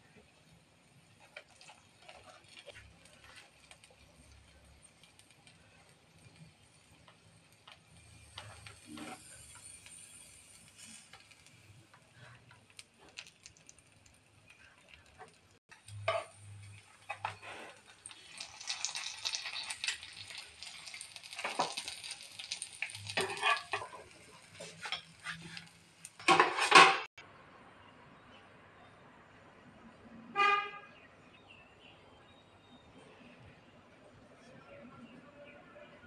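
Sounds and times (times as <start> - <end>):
sizzling hiss: 0.0 - 26.5
spatula scraping a pan: 1.2 - 5.3, 6.1 - 13.3, 15.9 - 27.0.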